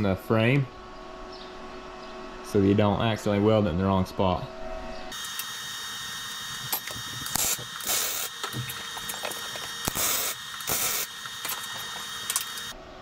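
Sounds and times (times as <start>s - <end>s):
arc welder crackling: 5.1s - 12.8s
steady hiss: 5.2s - 12.8s.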